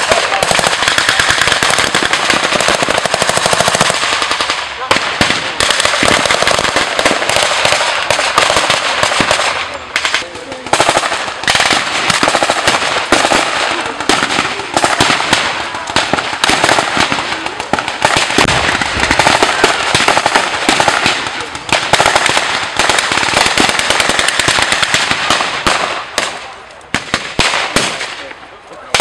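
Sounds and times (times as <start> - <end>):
single gunshots: 0.0 - 28.3.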